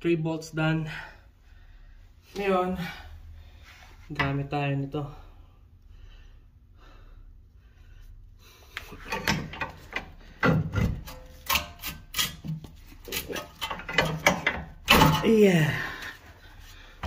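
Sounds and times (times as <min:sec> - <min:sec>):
pry bar scraping metal: 0:10.8 - 0:15.4.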